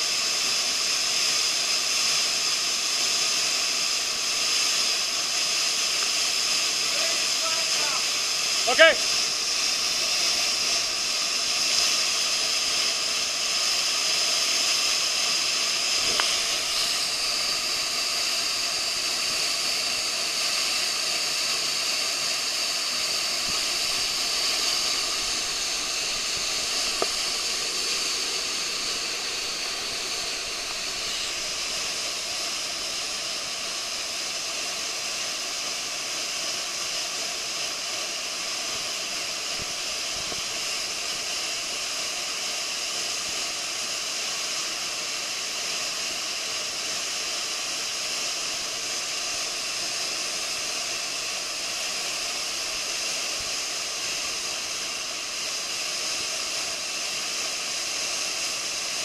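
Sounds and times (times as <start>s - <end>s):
waterfall rushing: 15.4s - 42.5s.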